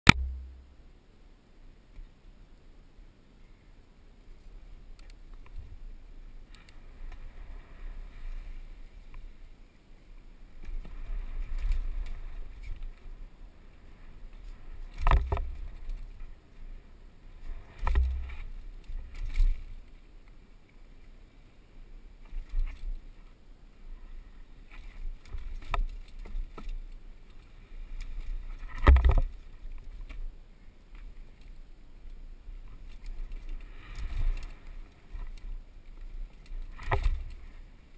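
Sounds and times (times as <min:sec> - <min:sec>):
bike tyres rumbling and rattling: 0:17.4 - 0:19.8.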